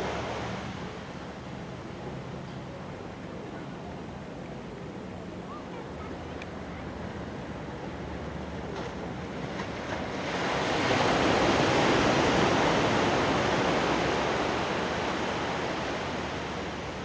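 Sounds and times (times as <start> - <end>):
wave breaking on beach: 9.4 - 17.0.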